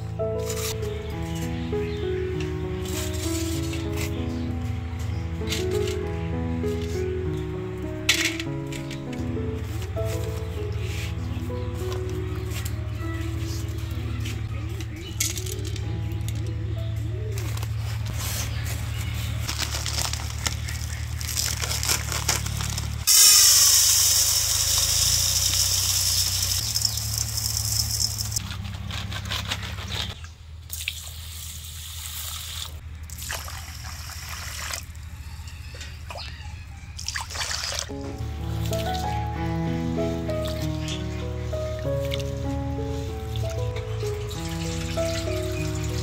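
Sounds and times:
rice pouring into metal bowl: 21.1 - 28.4
water pouring and splashing: 30.7 - 35.0, 37.0 - 37.9, 43.1 - 46.0.

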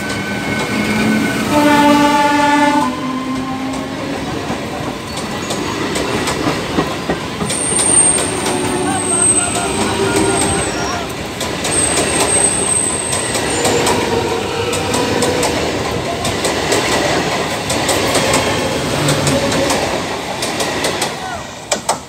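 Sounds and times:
coaches clicking over rail joints: 0.0 - 1.8, 2.4 - 22.0
train wheels on rails: 0.0 - 22.0
high wheel squeal: 7.5 - 15.4.

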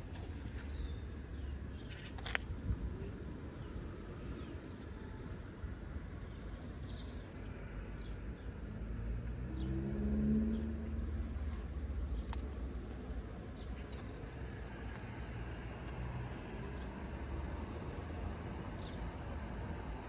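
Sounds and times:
low rumble of wind or traffic: 0.0 - 20.0
approaching engine hum: 7.4 - 20.0.

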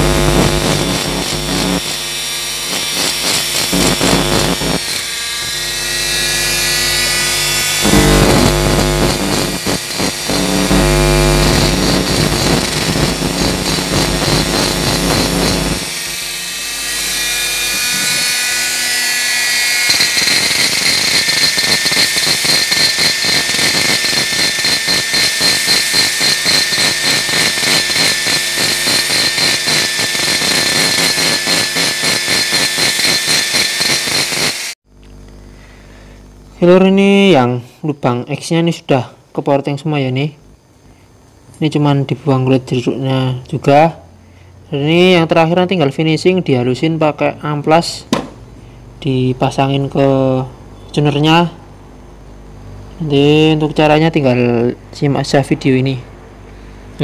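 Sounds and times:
low hum: 0.0 - 30.0
rotary grinder whining: 0.0 - 35.4.

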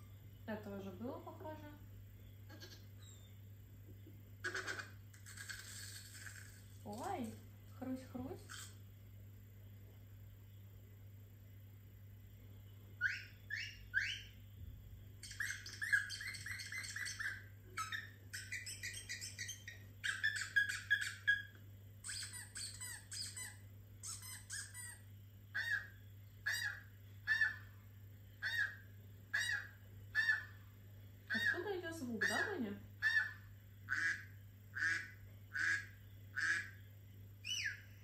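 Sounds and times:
recorded bird calls from speaker: 0.0 - 3.4, 13.0 - 14.4, 15.2 - 38.0.

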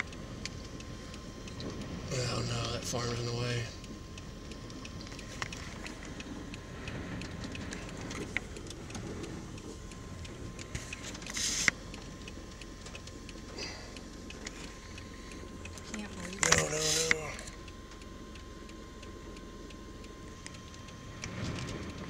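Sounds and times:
light ticks: 0.0 - 22.0
vehicle interior rumble: 0.0 - 22.0
short hiss: 11.0 - 11.8.

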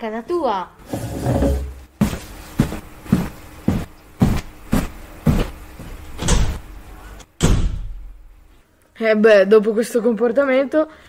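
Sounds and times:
footsteps on hard floor: 0.9 - 6.6.

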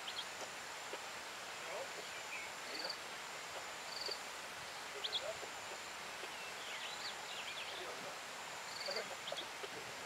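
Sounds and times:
faint high insect whine: 0.0 - 10.0
steady hiss: 0.0 - 10.0.

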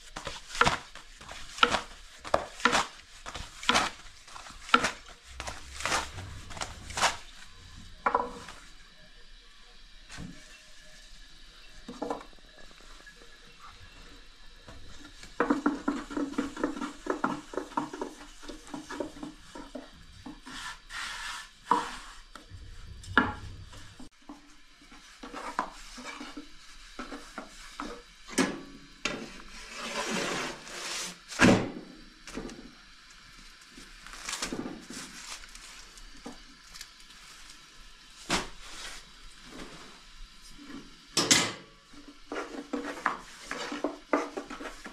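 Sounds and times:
dough sheet swishing: 0.0 - 7.7.

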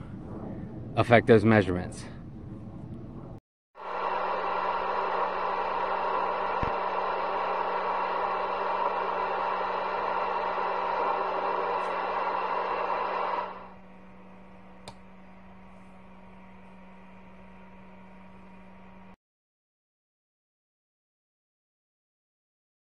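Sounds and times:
steady low hum: 0.0 - 19.2
radio static hiss: 3.8 - 13.7.

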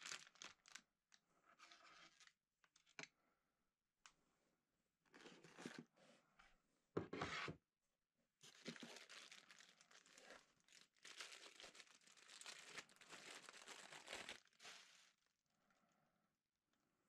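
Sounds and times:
plastic bag crinkling: 0.0 - 0.8, 8.4 - 15.1.

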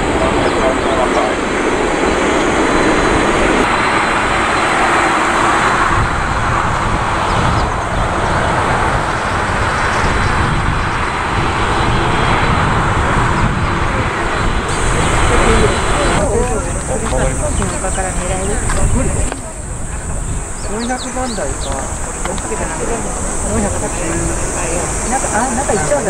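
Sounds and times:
jet engines running loudly: 0.0 - 26.0.

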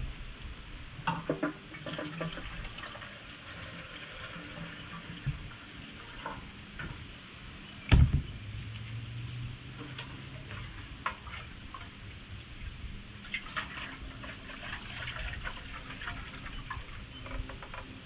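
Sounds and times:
fuel trickling into tank: 1.1 - 7.0, 9.7 - 17.9.

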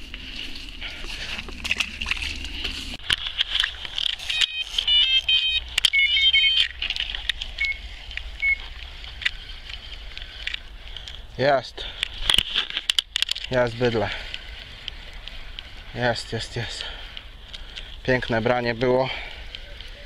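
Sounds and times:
rustling and handling clicks: 1.4 - 11.3, 11.9 - 15.7
electronic bite alarm beeping: 4.2 - 6.8, 7.6 - 7.8, 8.4 - 8.6.

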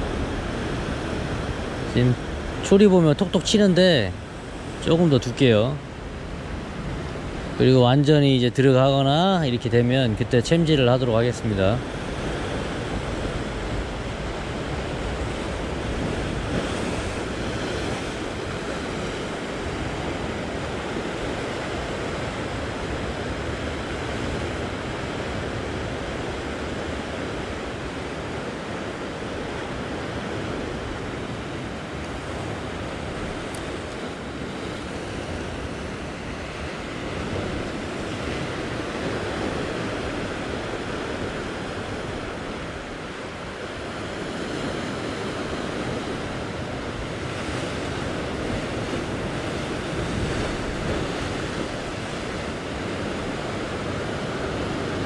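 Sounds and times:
ocean surf washing against rocks: 0.0 - 55.0
wind buffeting microphone: 11.8 - 55.0.

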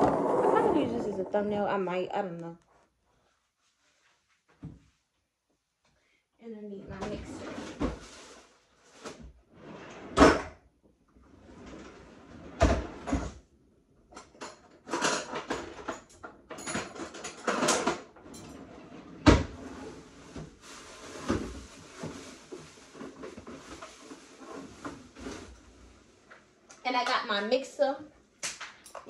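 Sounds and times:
cupboard doors and drawers shutting: 9.6 - 10.6, 12.3 - 13.4, 18.8 - 22.2
clatter of objects being moved: 14.1 - 27.4.

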